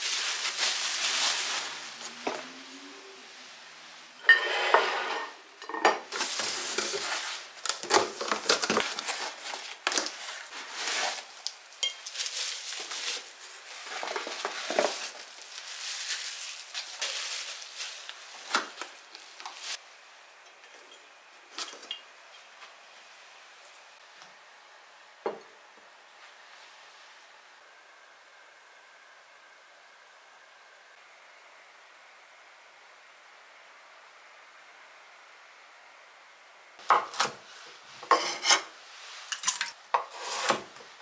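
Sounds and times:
bubble wrap crinkling: 0.0 - 2.3, 6.1 - 19.8
ceramic clinking: 20.5 - 22.5.

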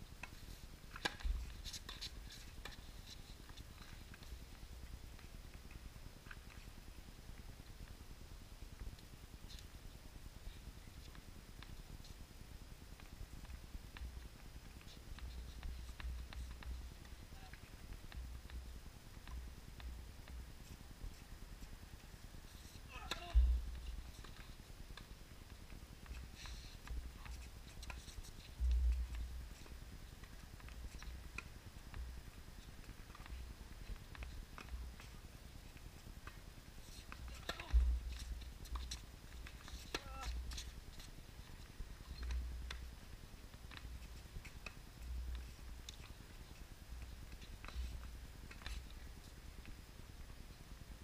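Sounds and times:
faint light ticks and taps: 12.9 - 43.0, 43.6 - 50.4.

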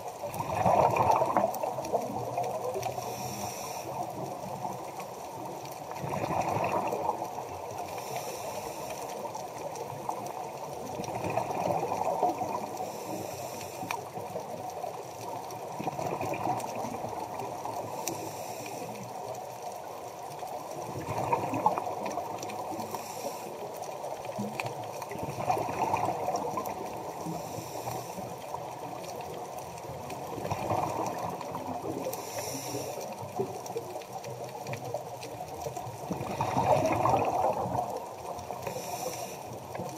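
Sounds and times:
exhaled bubbles rushing underwater: 0.0 - 39.9
regulator inhalation hiss: 2.9 - 4.2, 7.9 - 9.2, 12.8 - 14.0, 17.9 - 19.0, 22.7 - 23.8, 27.2 - 28.3, 32.2 - 33.0, 38.6 - 39.6.

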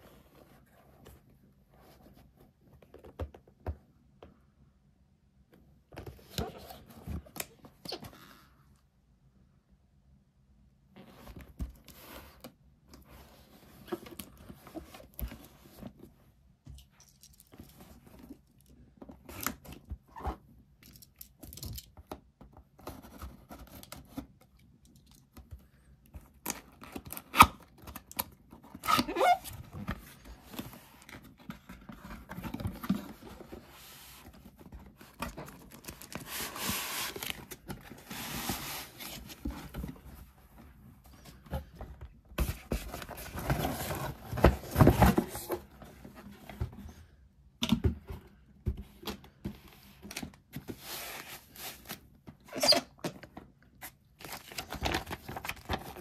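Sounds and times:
cardboard box rustling and tearing: 42.4 - 45.7.

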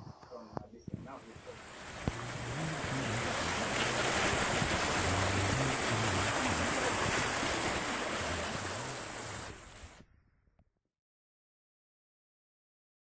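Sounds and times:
stream splashing over stones: 1.0 - 10.0.

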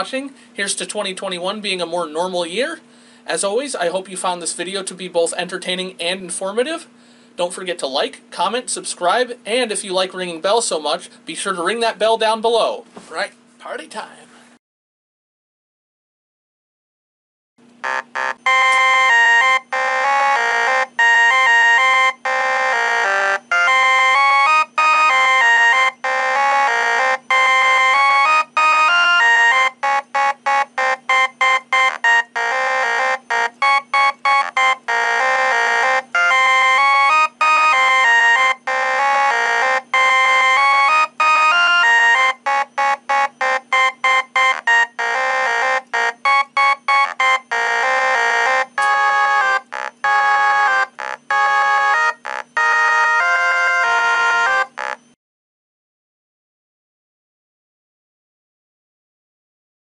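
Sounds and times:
fire alarm speaker melody: 17.8 - 55.1.

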